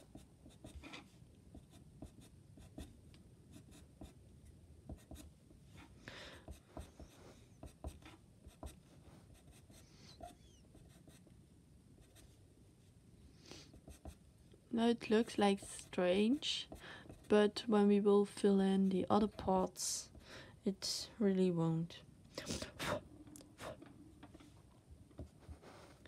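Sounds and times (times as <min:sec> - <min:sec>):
pencil scratching on paper: 0:00.0 - 0:02.9, 0:06.4 - 0:11.3, 0:13.7 - 0:14.2.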